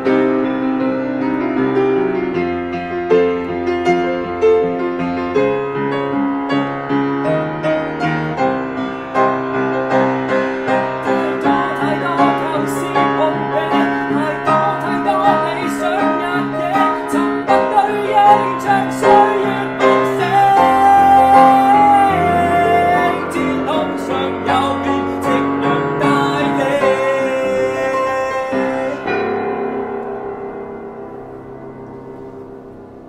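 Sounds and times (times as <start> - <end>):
upright piano playing chords: 0.0 - 33.0
man singing: 11.0 - 29.2.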